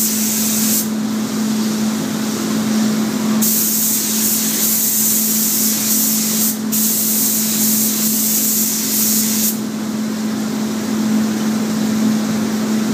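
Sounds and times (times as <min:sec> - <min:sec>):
spray gun hissing: 0:00.0 - 0:00.9, 0:03.4 - 0:09.6.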